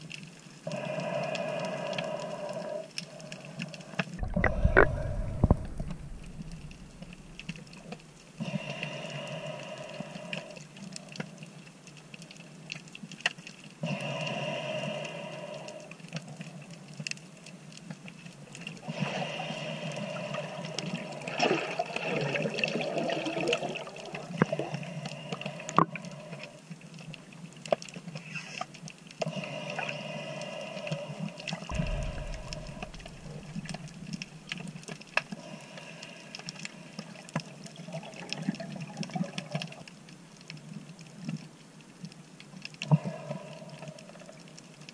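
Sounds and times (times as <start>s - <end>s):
underwater clicks and crackles: 0.0s - 44.9s
rushing water noise: 4.2s - 10.2s, 31.6s - 36.9s.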